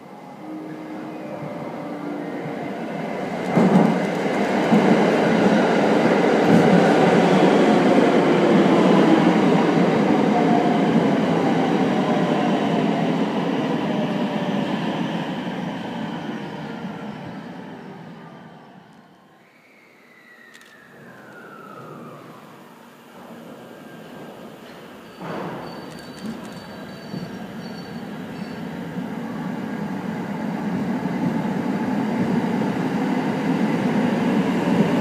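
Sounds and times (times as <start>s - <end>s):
electric train passing: 0.0s - 19.1s, 20.1s - 35.0s.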